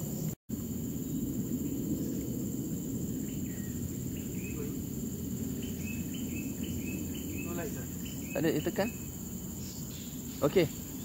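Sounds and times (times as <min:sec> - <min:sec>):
high insect trill: 0:00.0 - 0:11.0
steady low rumble: 0:00.0 - 0:11.0
short chirping calls: 0:03.1 - 0:11.0.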